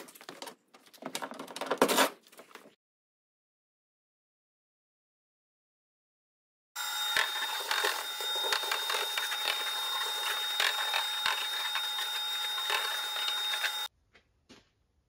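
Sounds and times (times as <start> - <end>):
thin high whine: 6.8 - 13.9.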